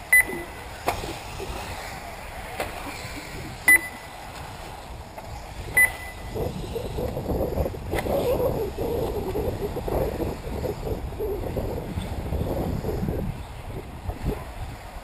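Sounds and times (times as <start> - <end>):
short electronic beeps: 0.1 - 0.6, 3.7 - 4.1, 5.8 - 6.3.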